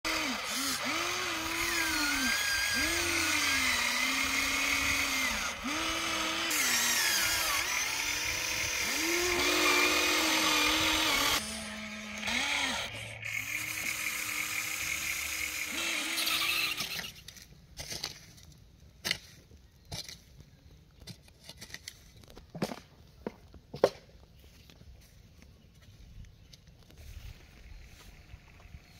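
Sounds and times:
small electric motors whining: 0.1 - 17.4.

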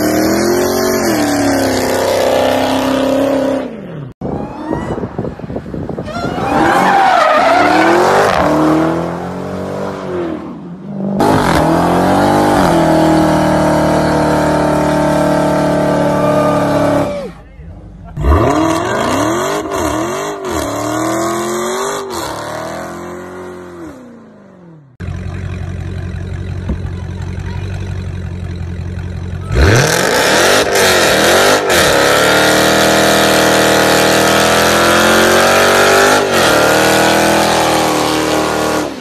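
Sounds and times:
car engine revving: 6.5 - 17.1, 18.1 - 39.0
car engine idling: 24.9 - 29.9.

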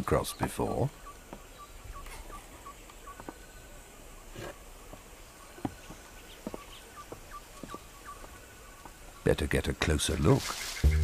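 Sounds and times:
short high chirps: 10.6 - 11.0.

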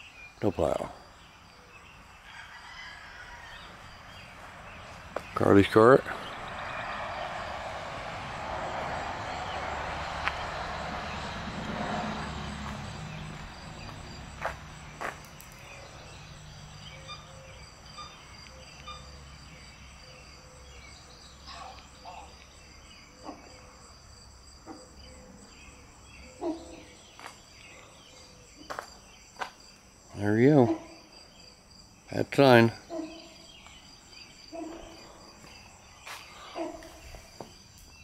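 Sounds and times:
insects chirping: 0.0 - 38.0
rushing noise: 3.9 - 14.9.

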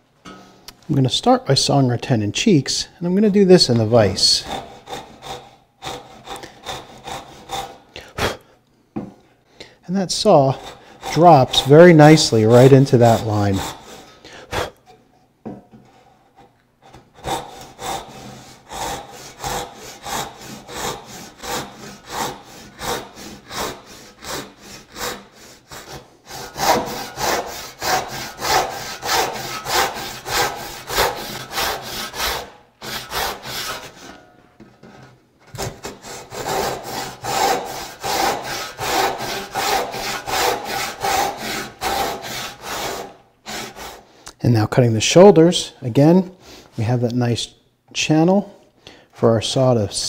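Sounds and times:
hand saw cutting wood: 3.8 - 8.4, 10.0 - 14.7, 16.3 - 34.3, 34.9 - 44.1.

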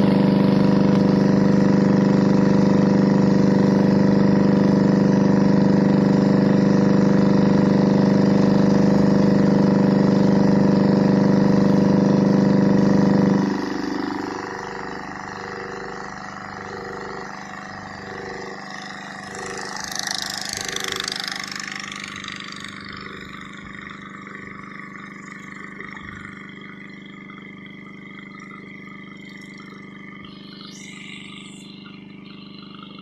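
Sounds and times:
water rushing along hull: 0.0 - 15.4
boat engine running: 0.0 - 33.0.

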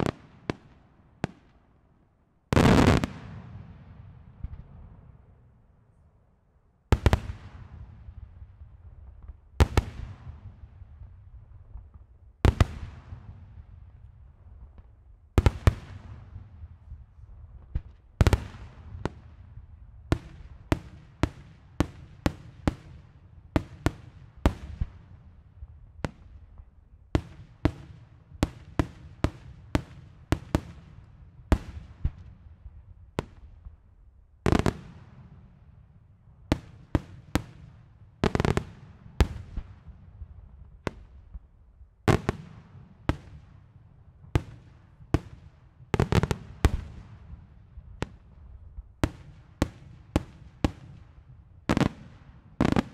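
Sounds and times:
fireworks bursting with bangs: 2.5 - 4.8, 34.4 - 35.4, 36.5 - 41.4, 42.1 - 43.6, 44.3 - 52.9
heavy fireworks booms: 51.7 - 52.9.

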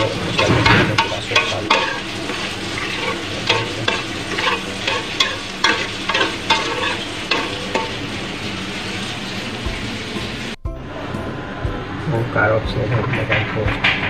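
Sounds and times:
metal spoon scraping a pot: 0.0 - 8.0
steady sizzle: 0.0 - 10.6.

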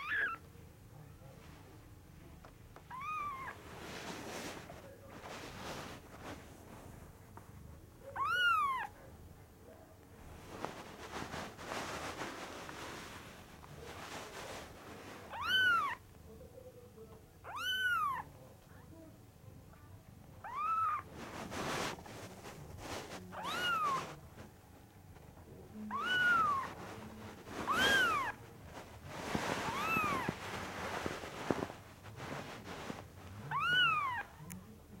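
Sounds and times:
kitten mewing: 2.9 - 3.6, 8.1 - 9.0, 15.3 - 16.0, 17.4 - 18.3, 20.4 - 21.1, 23.3 - 24.2, 25.9 - 26.8, 27.4 - 28.4, 29.3 - 30.5, 33.4 - 34.4.

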